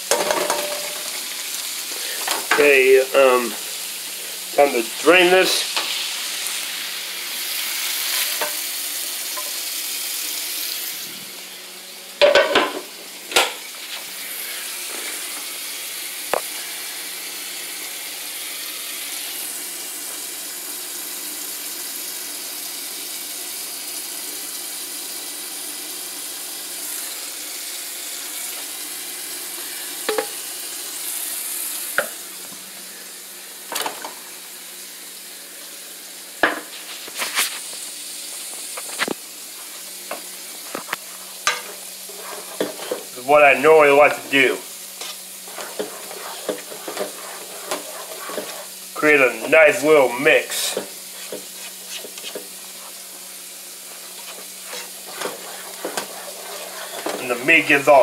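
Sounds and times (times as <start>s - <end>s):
food sizzling in a frying pan: 0.0s - 58.0s.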